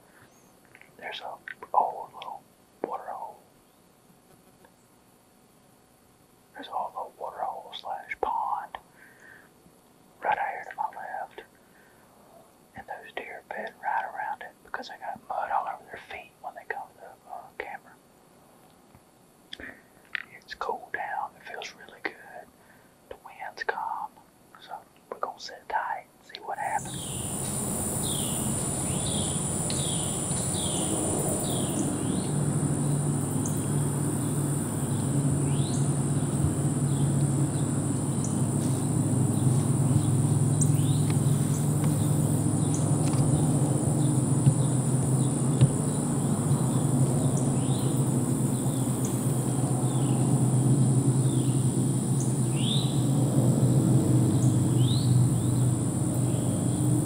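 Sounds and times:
insect chorus buzzing: 0.0 - 57.0
bird chirping: 26.3 - 53.2, 54.2 - 57.0
low hum: 26.3 - 57.0.

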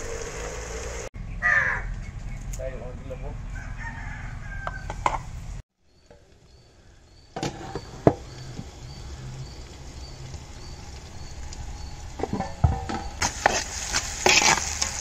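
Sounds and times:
birds calling: 5.8 - 13.3.

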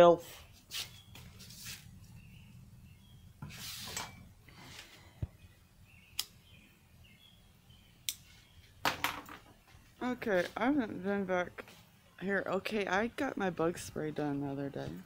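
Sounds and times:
faint bird chirps: 0.3 - 1.4, 2.0 - 8.8
sharp clicks: 6.1 - 6.4.

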